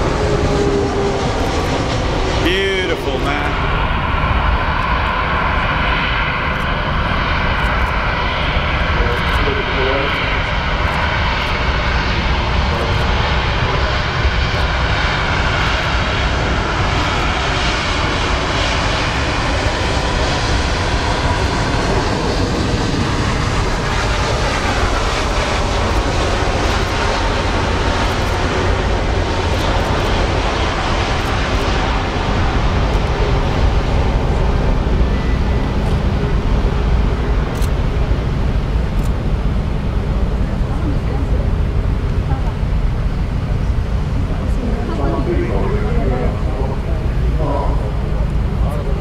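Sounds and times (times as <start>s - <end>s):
faint engine whine: 0.0s - 49.0s
jet engine roar: 0.0s - 49.0s.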